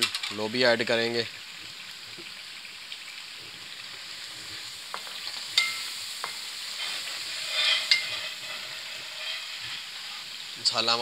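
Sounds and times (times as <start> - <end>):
sauce sizzling in hot oil: 0.0 - 11.0
wooden spatula scraping: 4.4 - 10.8
spatula knocking on pan: 4.9 - 6.4.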